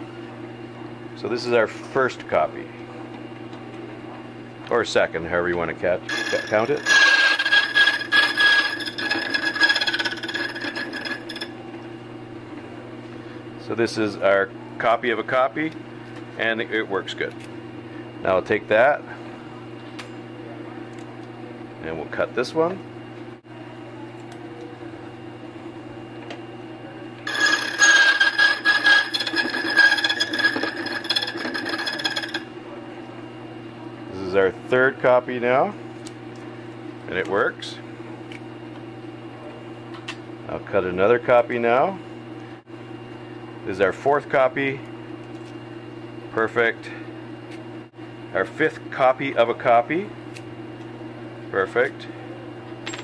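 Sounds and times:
key cutter rasping metal: 6.1 - 11.5, 27.3 - 32.4
machine motor running: 6.1 - 11.5, 27.3 - 32.5
machine motor humming: 6.1 - 12.5.

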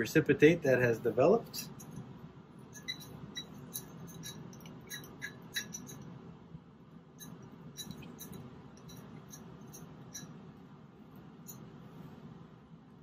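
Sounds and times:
low room hum: 0.0 - 13.0
glass beaker clinking: 2.7 - 6.2, 7.2 - 10.4.

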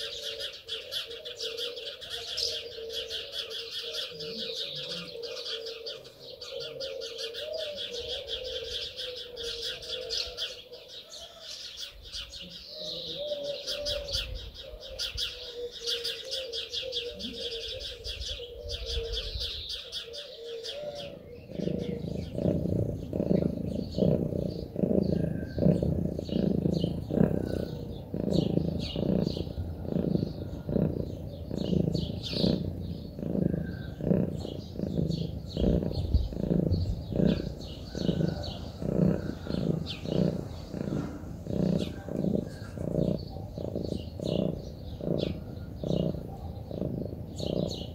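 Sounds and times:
cat purring: 21.2 - 47.9.

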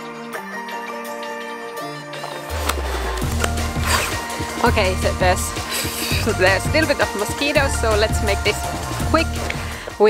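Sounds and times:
background music with chords: 0.0 - 10.0.

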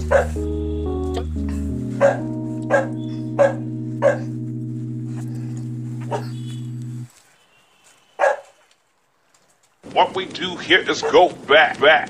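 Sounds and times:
held chord of background music: 0.0 - 7.1
dog yipping: 0.1 - 0.4, 2.0 - 4.3, 8.2 - 8.6.

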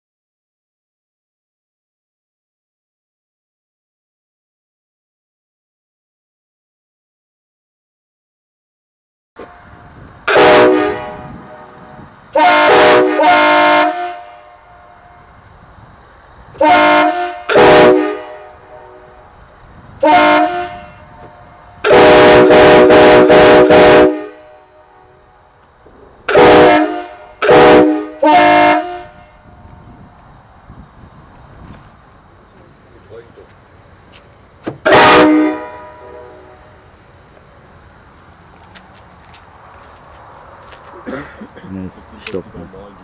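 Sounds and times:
air horn blasts: 9.4 - 15.4, 16.6 - 19.4, 20.0 - 25.3, 26.3 - 29.7, 34.8 - 36.8.

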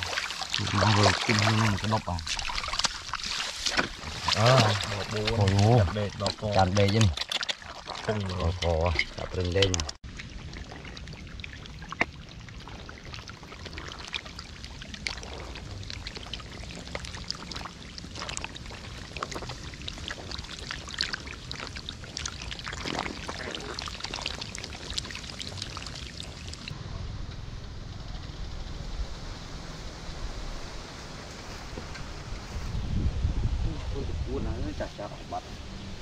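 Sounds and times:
hands splashing in muddy water: 0.0 - 26.6.

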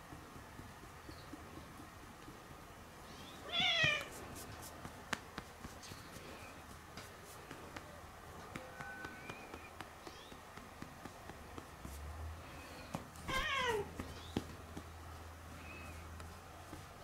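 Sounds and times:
hand patting cat: 0.1 - 17.0
cat meowing: 3.4 - 4.1, 13.3 - 13.9.

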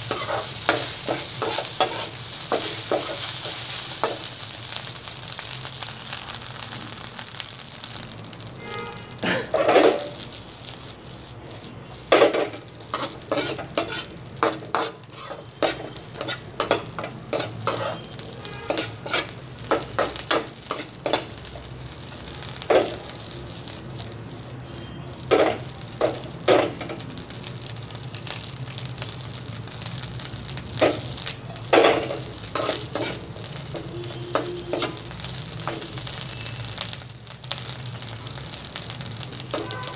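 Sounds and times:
metal spatula scraping a pan: 0.0 - 4.2, 8.6 - 10.2, 11.5 - 21.3, 31.7 - 35.9, 39.5 - 39.9
rice sizzling in a wok: 0.0 - 39.9.

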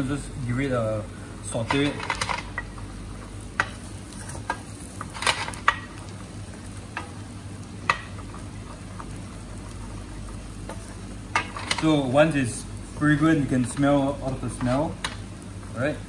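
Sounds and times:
garlic sizzling in a pan: 0.0 - 16.0.

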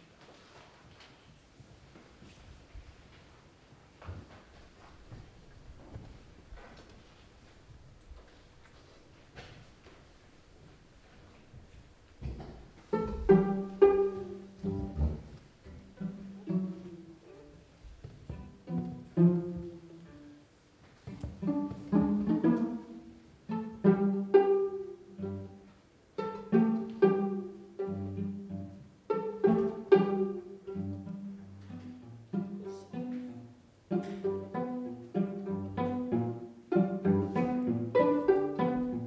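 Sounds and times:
piano trio chamber music: 12.6 - 20.5, 21.1 - 39.0.

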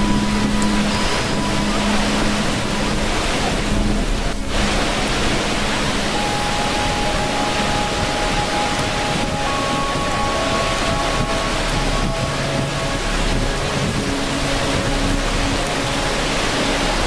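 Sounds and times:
rushing water: 0.0 - 17.0.

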